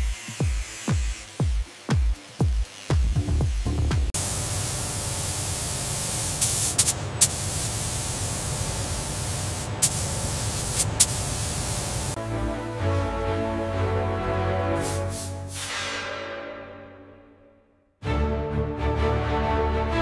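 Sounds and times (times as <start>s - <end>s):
spray gun hissing: 4.2s - 12.2s, 14.8s - 15.7s.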